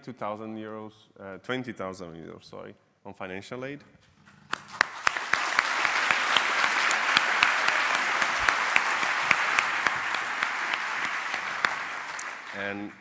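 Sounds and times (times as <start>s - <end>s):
large audience applauding: 4.4s - 13.0s.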